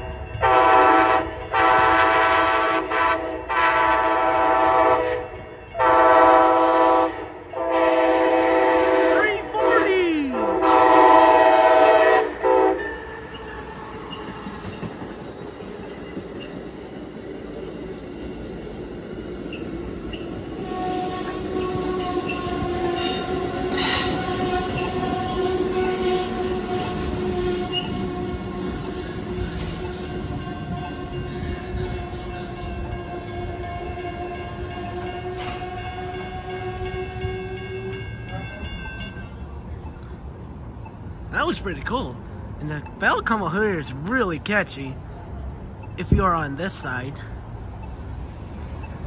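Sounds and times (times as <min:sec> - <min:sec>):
train horn: 0:00.0 - 0:13.3, 0:20.5 - 0:39.2
train cars rolling past: 0:00.0 - 0:49.0
wheels and brakes squealing: 0:12.8 - 0:16.7, 0:19.2 - 0:31.8.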